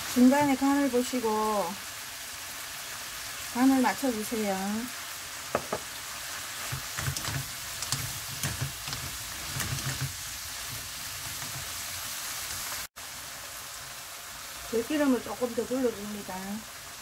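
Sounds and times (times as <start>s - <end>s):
vegetables sizzling in oil: 0.0s - 17.0s
wooden spatulas scraping a pan: 6.5s - 11.8s.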